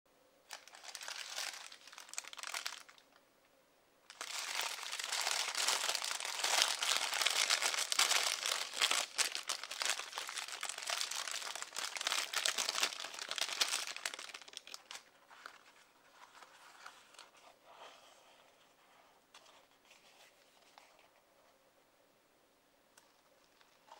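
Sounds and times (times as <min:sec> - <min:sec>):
paper wrapper crinkling: 0:00.5 - 0:03.2, 0:04.1 - 0:17.4.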